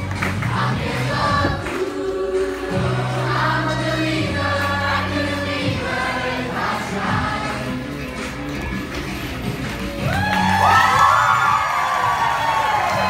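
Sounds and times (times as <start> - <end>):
cast singing as a chorus: 0.4 - 8.0.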